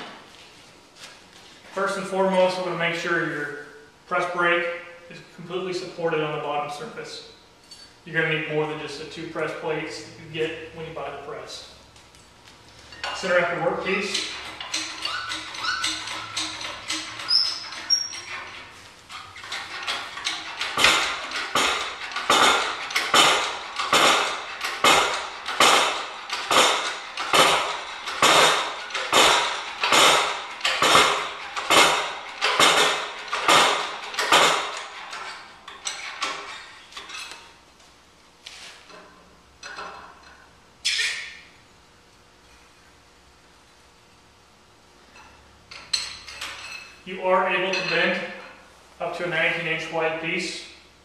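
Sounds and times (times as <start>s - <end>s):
hydraulic jack clanking: 12.9s - 37.4s.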